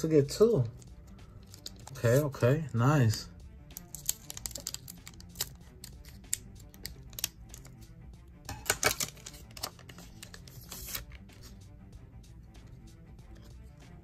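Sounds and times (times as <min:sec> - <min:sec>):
soft background music: 0:00.0 - 0:14.0
foil wrapper crinkling: 0:03.8 - 0:05.5
scissors snipping foil: 0:03.8 - 0:07.7.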